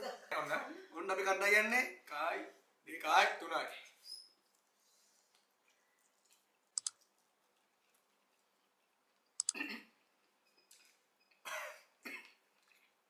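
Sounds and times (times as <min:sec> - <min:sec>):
mouth clicks: 0:09.4 - 0:09.6.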